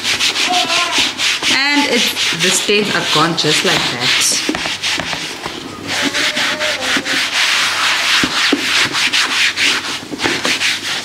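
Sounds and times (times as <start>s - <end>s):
sponge scrubbing plastic: 0.0s - 11.0s.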